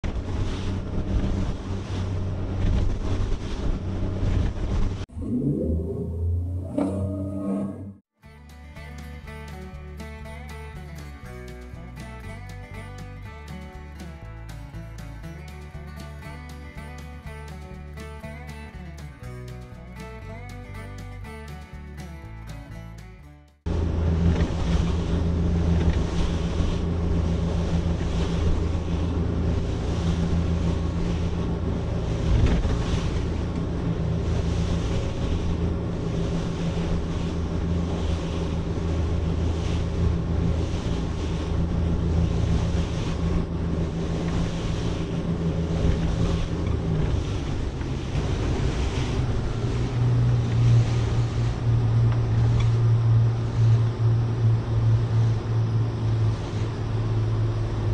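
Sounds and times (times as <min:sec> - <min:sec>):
hull rushing through water: 0:00.0 - 0:08.0, 0:23.7 - 0:57.9
outboard engine drone: 0:00.0 - 0:08.1, 0:08.7 - 0:22.8, 0:23.6 - 0:57.9
wind on microphone: 0:23.7 - 0:57.9.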